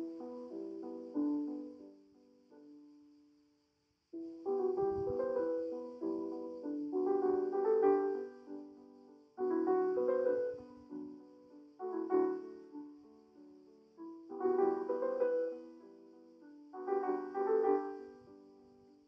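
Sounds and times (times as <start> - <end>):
slow solo piano chords: 0.0 - 3.0, 4.2 - 19.0.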